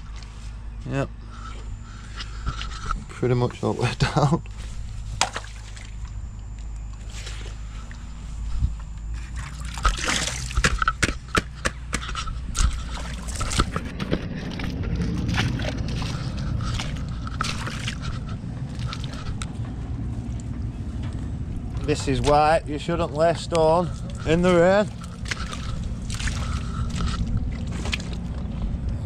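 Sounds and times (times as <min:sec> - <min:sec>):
boots squelching through mud: 0:09.1 - 0:29.0
sharp knocks and clicks: 0:10.6 - 0:12.8.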